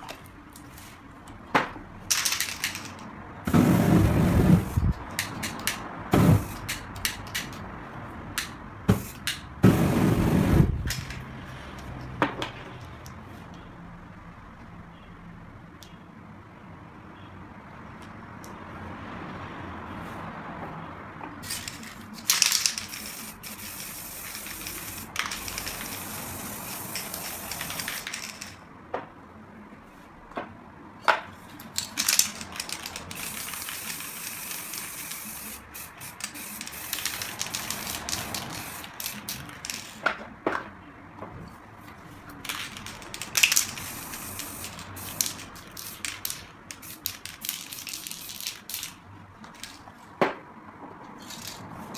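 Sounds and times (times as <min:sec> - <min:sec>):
spray cans clicking and knocking: 0:01.6 - 0:03.8, 0:04.6 - 0:07.6, 0:21.4 - 0:28.6, 0:31.0 - 0:40.7, 0:42.3 - 0:50.4, 0:51.2 - 0:51.9
spray can hissing: 0:02.1 - 0:07.6, 0:08.4 - 0:11.1, 0:21.4 - 0:28.5, 0:31.8 - 0:40.0, 0:42.6 - 0:48.9.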